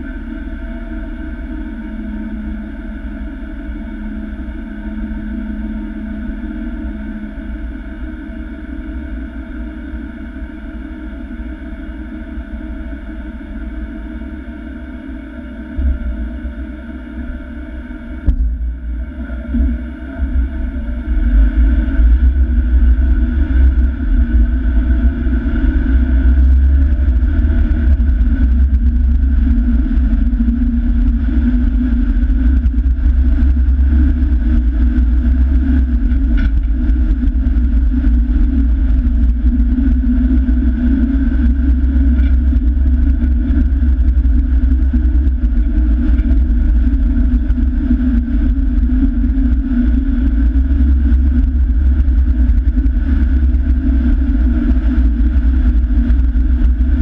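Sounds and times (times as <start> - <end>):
vehicle driving low rumble: 15.4 - 57.0.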